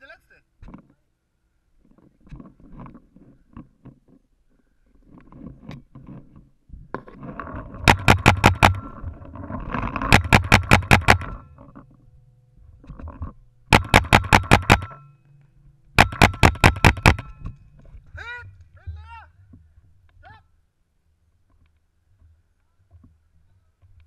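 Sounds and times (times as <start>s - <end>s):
rustling and scraping: 0.6s - 1.1s, 1.7s - 13.6s, 17.2s - 20.2s
paintball marker firing: 7.8s - 9.0s, 10.0s - 11.4s, 13.7s - 15.0s, 16.0s - 17.5s.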